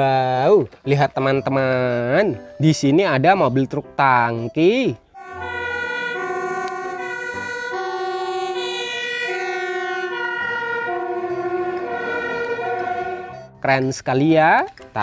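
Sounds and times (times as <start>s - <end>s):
fire engine two-tone siren: 5.2s - 13.5s.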